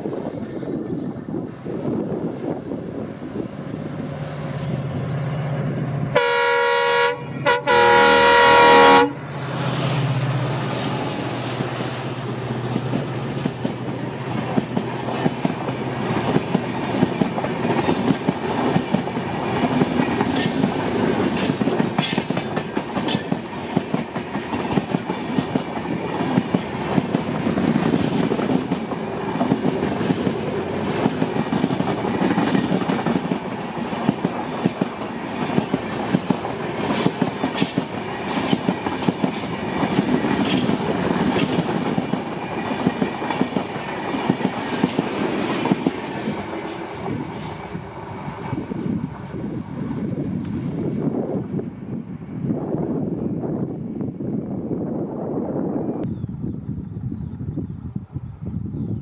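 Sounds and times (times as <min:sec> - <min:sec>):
train wheels rumbling on rail: 0:00.0 - 0:59.0
wheels clattering over rail joints: 0:34.0 - 0:43.7.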